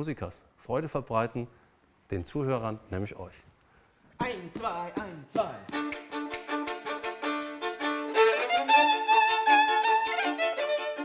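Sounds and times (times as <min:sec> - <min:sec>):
violins playing in harmony: 0:05.7 - 0:11.0.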